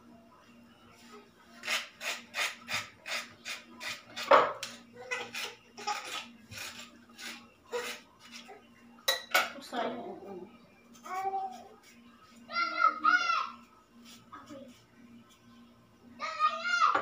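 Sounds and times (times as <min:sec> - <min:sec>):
food scraped and rubbed by hand: 0:00.9 - 0:04.3, 0:05.0 - 0:08.5, 0:11.0 - 0:12.5, 0:13.6 - 0:15.4.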